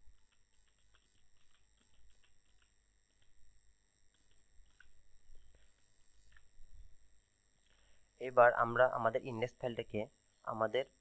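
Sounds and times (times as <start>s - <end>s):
keyboard typing: 0.0s - 3.4s, 4.1s - 6.6s.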